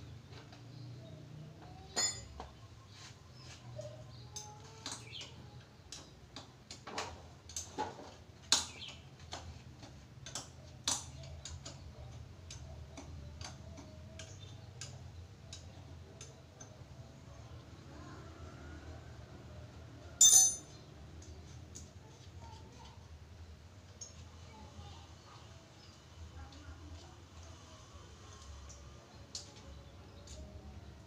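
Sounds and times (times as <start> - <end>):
metal hand tools clinking: 2.0 - 2.4, 20.2 - 20.7.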